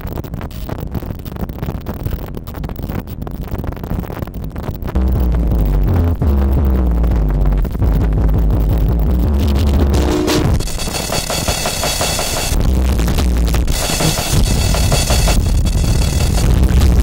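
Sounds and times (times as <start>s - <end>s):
noisy electric guitar: 5.0s - 17.0s
frantic drum kit: 7.7s - 17.0s.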